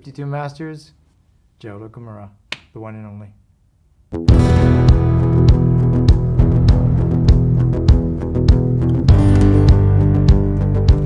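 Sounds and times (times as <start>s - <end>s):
instrumental music with steady beat: 4.0s - 11.0s.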